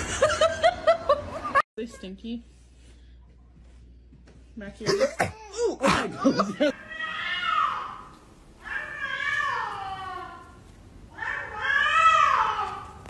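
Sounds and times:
cat yowling: 6.8 - 13.0.

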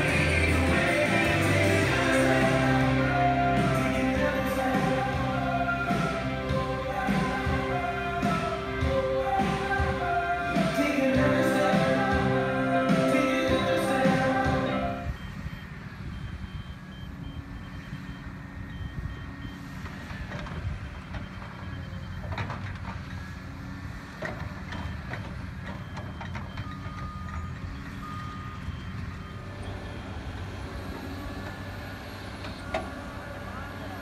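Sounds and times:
diesel engine running: 0.0 - 34.0
backup alarm beeping: 10.6 - 19.8, 20.7 - 22.7, 24.8 - 30.2.

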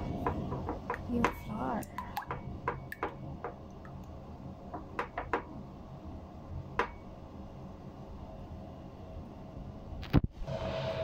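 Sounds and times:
spatula knocking bowl side: 0.1 - 3.6.

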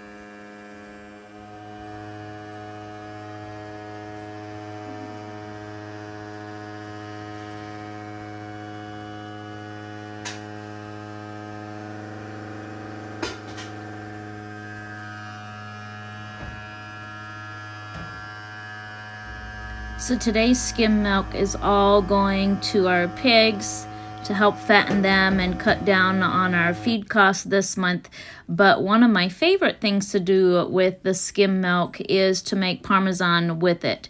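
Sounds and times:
electric motor hum: 0.0 - 27.5.

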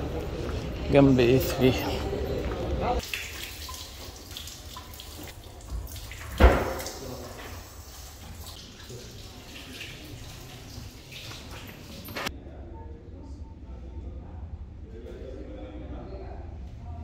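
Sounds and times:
tap water splashing over hands: 3.0 - 12.3.

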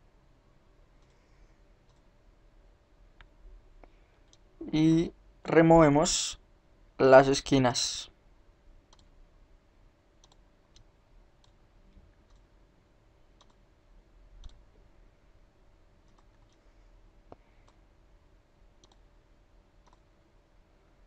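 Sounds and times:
faint steady hum: 0.0 - 21.0
computer mouse clicks: 1.0 - 1.2, 1.8 - 2.1, 3.2 - 4.5, 8.9 - 9.2, 10.2 - 12.5, 13.4 - 13.6, 14.4 - 14.6, 16.0 - 16.6, 17.3 - 17.8, 18.8 - 19.1, 19.8 - 20.1.

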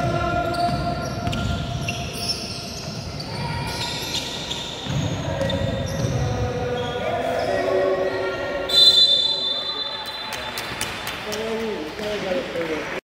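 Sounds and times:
sneakers squeaking on floor: 0.0 - 10.3.

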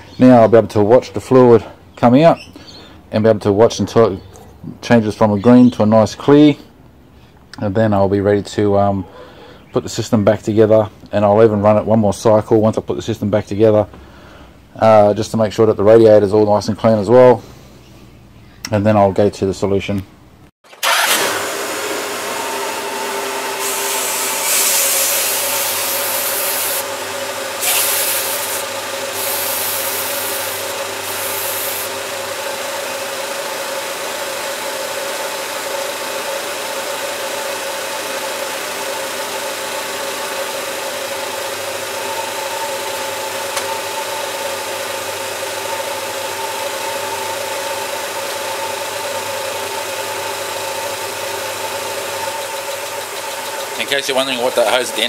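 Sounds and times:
bursts of hiss: 27.6 - 31.9
car engine idling: 28.2 - 55.0.

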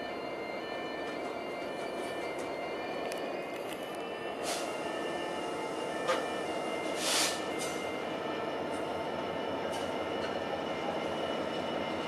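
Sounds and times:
diesel locomotive engine running: 0.0 - 12.0
hiss burst: 7.0 - 7.4.

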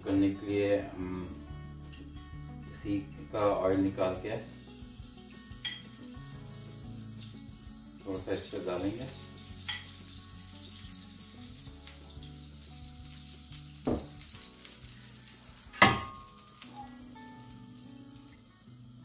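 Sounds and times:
oil sizzling in a pan: 0.0 - 19.0
metallic pan knocks: 15.8 - 16.3.

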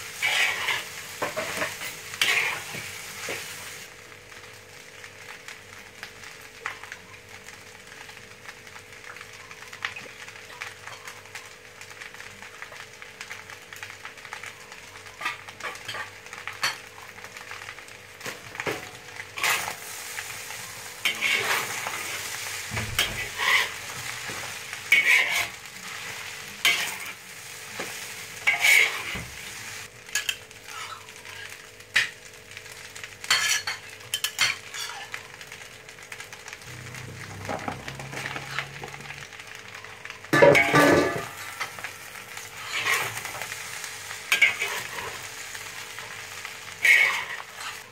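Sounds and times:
rice sizzling in a wok: 0.0 - 47.9
metal spatula scraping a wok: 0.2 - 2.8, 19.4 - 19.9, 21.0 - 22.3, 23.0 - 27.1, 27.8 - 29.3, 42.5 - 43.5, 44.3 - 45.3, 46.7 - 47.8.

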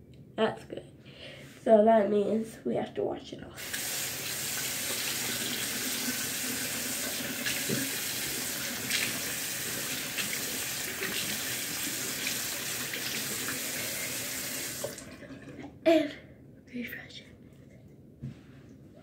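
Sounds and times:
tap running into sink: 7.0 - 8.2.

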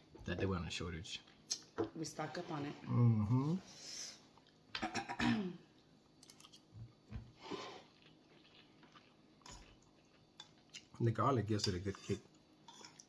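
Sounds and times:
quiet chewing: 4.3 - 4.6, 5.7 - 11.0
breath: 7.4 - 7.9.

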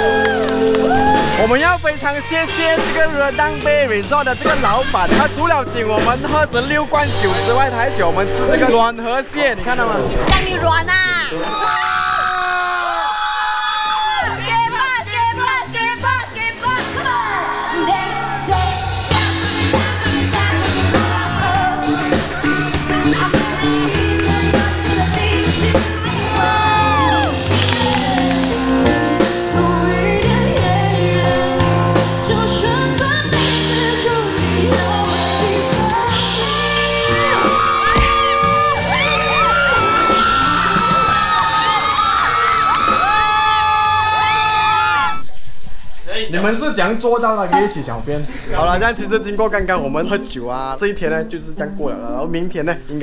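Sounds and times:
crowd yelling and whooping: 0.0 - 2.8, 10.9 - 16.0, 26.0 - 28.8, 36.4 - 45.5
live rock band playing: 0.0 - 8.9, 15.4 - 44.2
woman singing: 14.4 - 38.4.

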